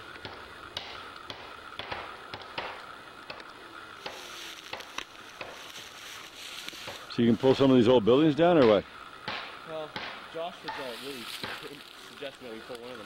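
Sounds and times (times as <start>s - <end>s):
footsteps crunching through dry brush: 4.0s - 7.8s, 10.5s - 13.0s.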